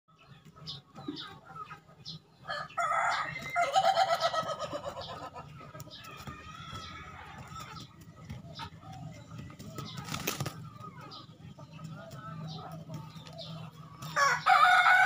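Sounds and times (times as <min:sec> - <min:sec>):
rooster crowing: 0:02.5 - 0:04.7, 0:14.1 - 0:15.0.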